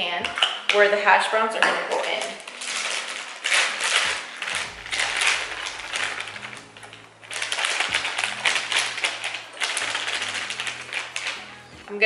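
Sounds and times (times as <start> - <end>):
plastic bag crinkling: 0.0 - 12.0
shredded potatoes pouring into pan: 2.2 - 11.8.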